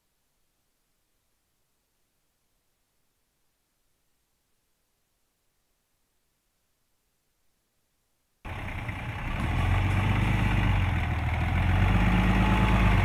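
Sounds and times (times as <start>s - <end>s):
truck engine idling: 8.5s - 13.0s.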